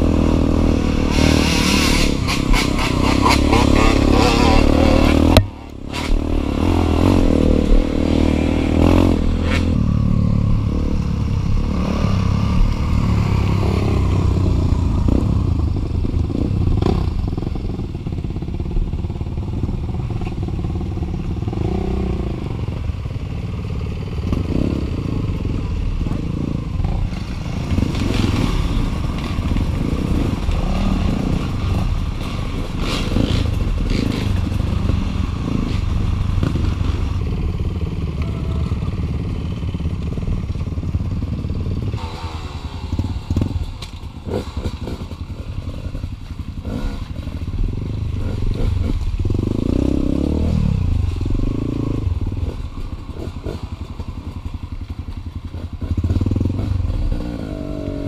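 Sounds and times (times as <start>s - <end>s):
dirt bike engine revving: 0.0s - 15.5s, 25.9s - 39.8s, 41.7s - 54.3s.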